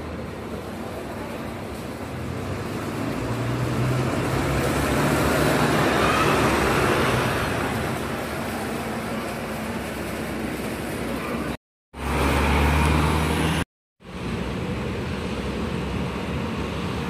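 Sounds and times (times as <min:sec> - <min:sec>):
bus engine hum: 0:00.0 - 0:17.0.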